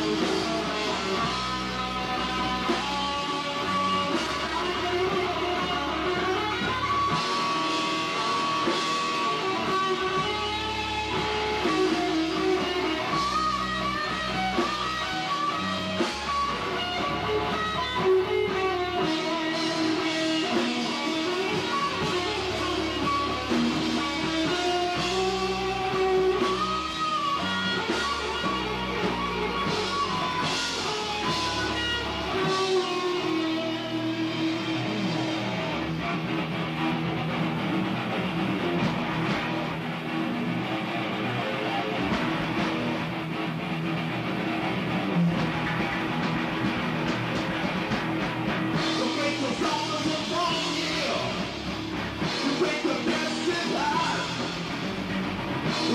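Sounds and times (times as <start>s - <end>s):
drums and cymbals: 0.0s - 55.9s
electric guitar bending notes: 0.0s - 55.9s.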